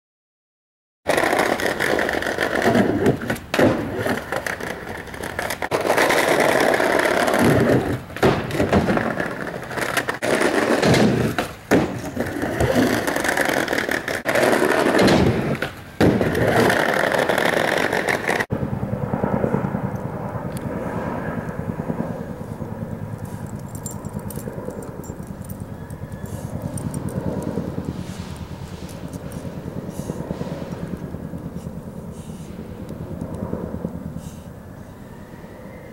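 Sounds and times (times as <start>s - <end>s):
skateboard clacks: 1.1s - 18.5s
skateboard wheels rolling on ramp: 1.1s - 18.5s
helicopter rotors beating: 1.1s - 35.8s.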